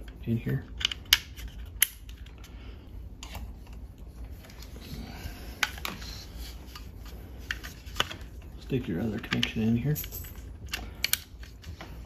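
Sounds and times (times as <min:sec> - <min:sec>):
cables rubbing and shuffling: 0:00.0 - 0:12.0.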